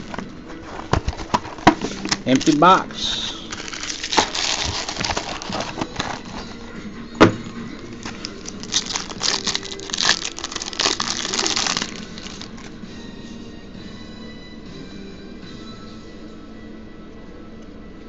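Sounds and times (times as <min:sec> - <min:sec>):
cardboard flap snapping: 0:00.0 - 0:02.6, 0:03.6 - 0:06.5, 0:07.8 - 0:12.7
plastic wrapping crinkling: 0:00.0 - 0:06.7, 0:07.7 - 0:12.8.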